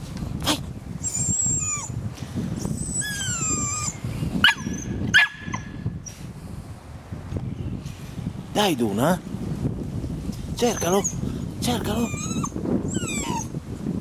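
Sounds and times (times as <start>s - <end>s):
dog whining: 1.0s - 2.0s, 2.6s - 4.9s, 11.9s - 13.5s
dog yipping: 2.8s - 5.7s, 12.0s - 13.5s.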